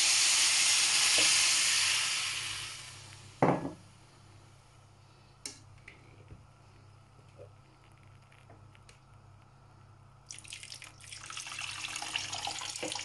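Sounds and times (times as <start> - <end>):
water sizzling in hot fat: 0.0 - 3.4, 10.3 - 13.0
loud clank against pot: 3.4 - 3.8.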